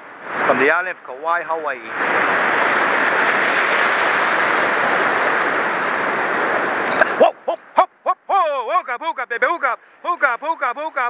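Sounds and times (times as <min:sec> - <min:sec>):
ocean surf washing over rocks: 0:00.0 - 0:07.8.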